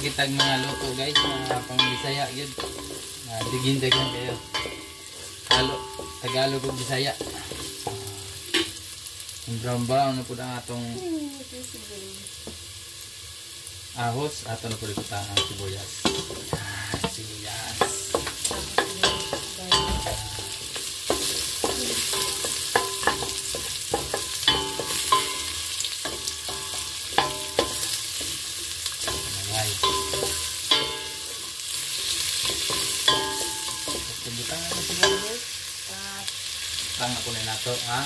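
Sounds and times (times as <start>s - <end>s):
aromatics sizzling in hot oil: 0.0s - 38.0s
wooden spoon knocking on metal pot: 0.3s - 8.7s, 14.9s - 28.4s, 29.0s - 31.4s, 32.4s - 35.4s.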